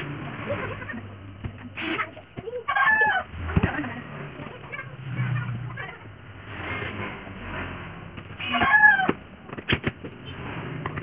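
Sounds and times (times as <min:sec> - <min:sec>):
chicken calling: 0:01.9 - 0:03.3.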